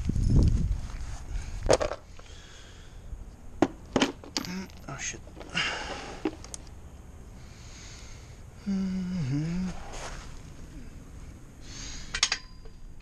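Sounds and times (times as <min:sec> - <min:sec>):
short scrape: 0:09.7 - 0:10.4
steel sockets clinking: 0:12.1 - 0:12.8.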